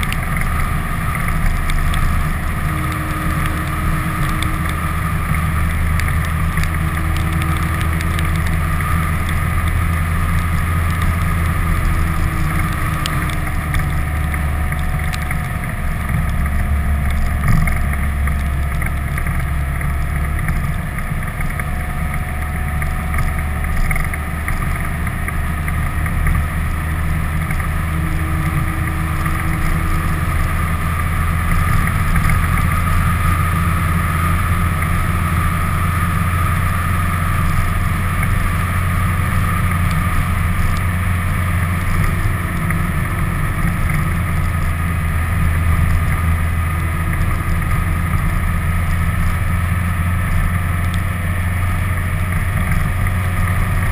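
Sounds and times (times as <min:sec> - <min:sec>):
vehicle engine and road noise: 0:00.0 - 0:53.9.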